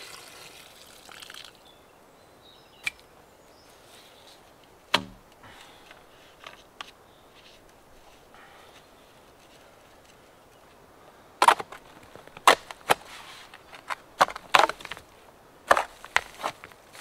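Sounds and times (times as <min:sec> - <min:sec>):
sharp crunches and knocks: 0:04.9 - 0:05.2, 0:11.4 - 0:15.1, 0:15.7 - 0:17.0.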